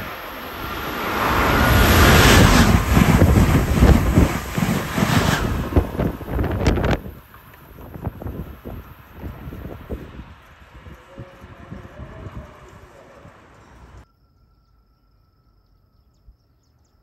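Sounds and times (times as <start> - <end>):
train rushing past: 0.0 - 7.2, 8.4 - 14.0
train cars clicking: 1.2 - 7.0.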